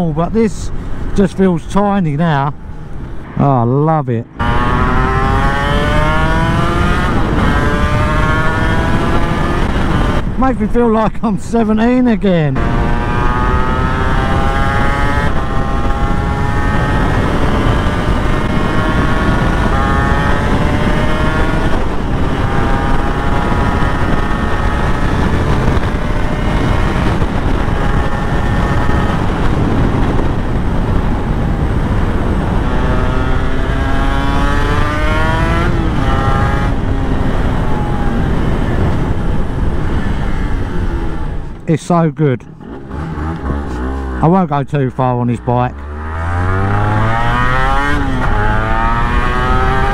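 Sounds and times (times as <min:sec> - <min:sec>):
motorcycle engine accelerating: 0:04.2 - 0:10.6, 0:12.4 - 0:41.7, 0:42.5 - 0:49.9
wind on microphone: 0:04.3 - 0:10.4, 0:12.6 - 0:41.6, 0:45.8 - 0:49.9.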